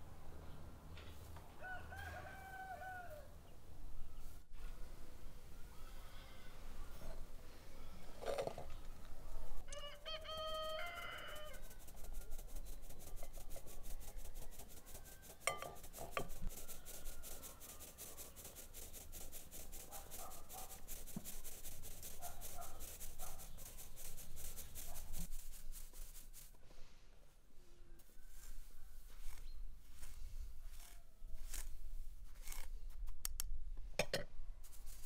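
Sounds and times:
rooster crowing: 0:01.6 - 0:03.4, 0:09.7 - 0:11.8.

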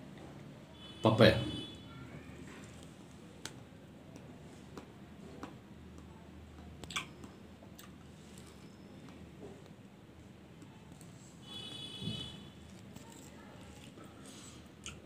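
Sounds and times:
person chewing soft fruit: 0:06.6 - 0:09.3, 0:12.6 - 0:15.0.

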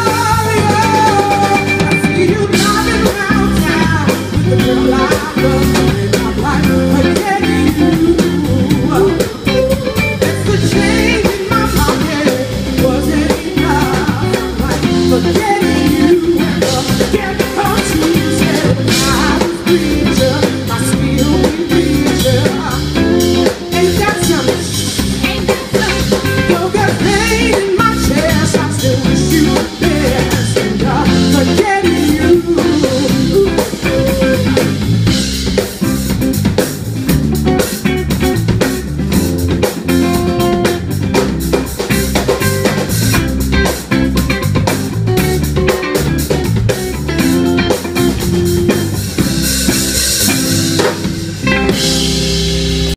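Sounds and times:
drum kit beat: 0:00.0 - 0:52.9
electric guitar: 0:00.0 - 0:52.9.

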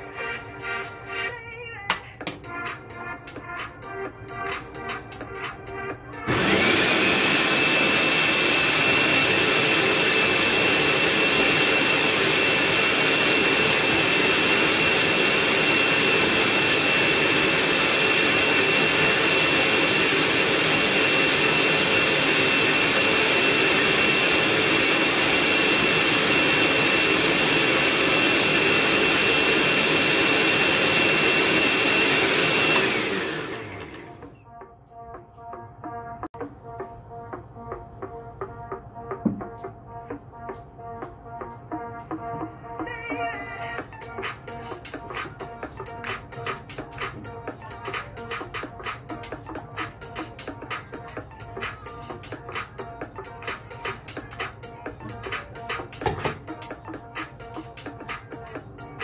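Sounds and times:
blender motor whining: 0:06.2 - 0:34.4.

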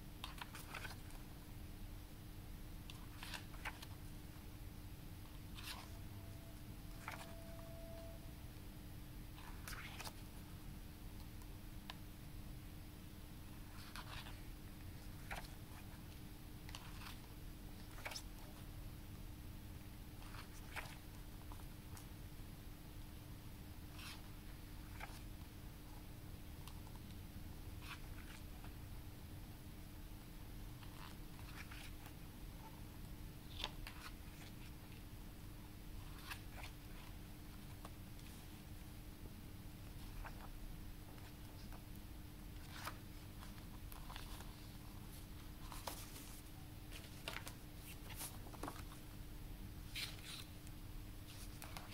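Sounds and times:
faint steady hum: 0:00.0 - 0:51.9
paper pages rustling: 0:00.2 - 0:01.2, 0:02.9 - 0:03.9, 0:05.6 - 0:06.0, 0:06.9 - 0:07.7, 0:09.4 - 0:10.2, 0:15.0 - 0:15.9, 0:17.8 - 0:18.4, 0:36.0 - 0:38.4, 0:42.6 - 0:49.0, 0:49.9 - 0:50.5, 0:51.3 - 0:51.9.

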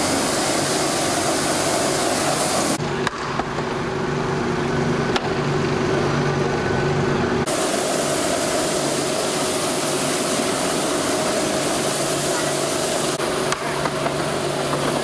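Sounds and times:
gas torch flame hissing: 0:00.0 - 0:02.8, 0:07.4 - 0:15.0
machine humming: 0:00.0 - 0:15.0.

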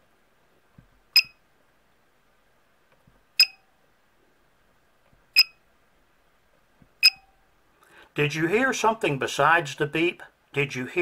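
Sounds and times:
short high beeps: 0:01.2 - 0:01.4, 0:03.4 - 0:03.6, 0:05.4 - 0:05.6, 0:07.0 - 0:07.3.

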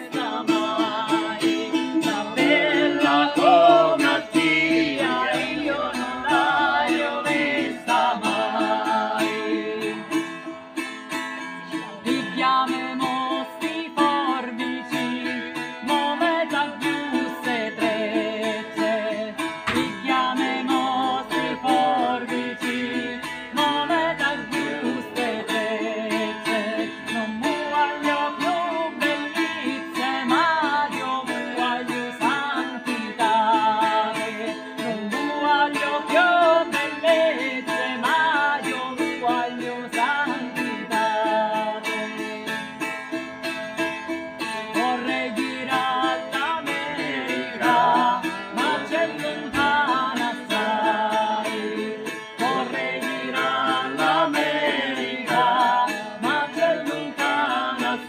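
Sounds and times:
men singing along: 0:00.0 - 0:10.2, 0:19.5 - 0:42.3, 0:44.7 - 0:58.0
woman singing: 0:00.0 - 0:10.4, 0:11.5 - 0:42.8, 0:44.4 - 0:58.0
acoustic guitar strumming: 0:00.0 - 0:58.0.

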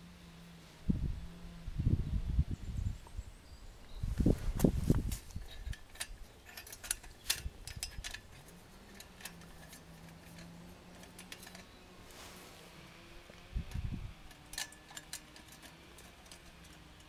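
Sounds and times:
metallic clicks and taps of wire: 0:05.2 - 0:11.7, 0:13.3 - 0:17.0.

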